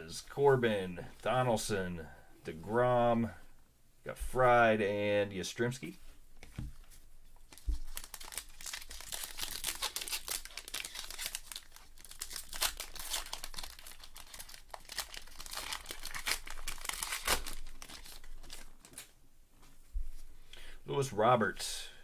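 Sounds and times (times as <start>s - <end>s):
foil wrapper crinkling: 7.5s - 19.1s.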